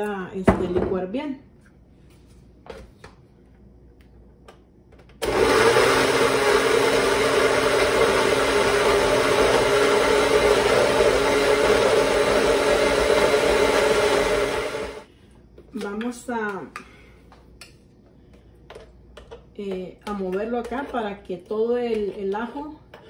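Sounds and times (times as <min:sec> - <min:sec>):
blender running: 0:05.2 - 0:15.1.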